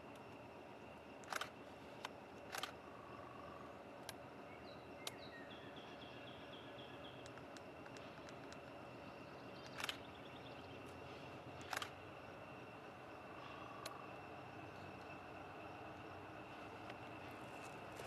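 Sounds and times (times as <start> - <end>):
faint outdoor background: 0.0 - 18.0
sharp clicks: 1.2 - 2.8, 7.2 - 8.8, 9.6 - 10.1, 11.6 - 12.0.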